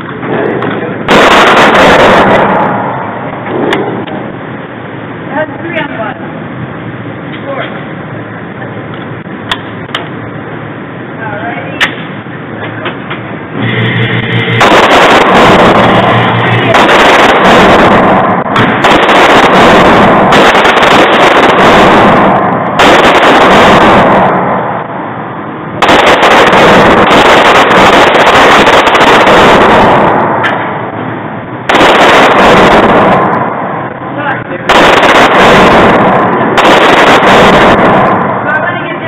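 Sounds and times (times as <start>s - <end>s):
distorted pistol shots: 1.1s - 4.2s, 13.6s - 30.9s, 31.6s - 34.0s, 34.7s - 38.4s.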